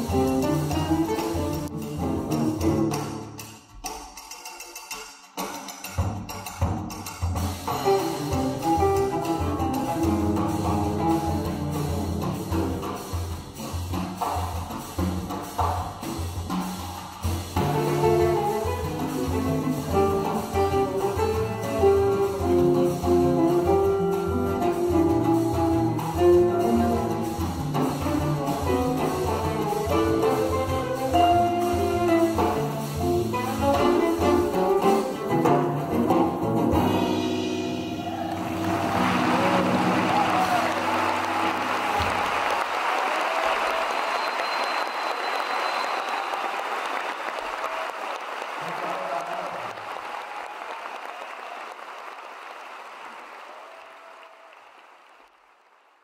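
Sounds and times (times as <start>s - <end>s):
acoustic guitar: 0.0s - 4.0s, 17.4s - 42.1s
drum kit: 0.0s - 42.7s
cello: 17.6s - 37.4s
audience applauding: 38.0s - 56.0s.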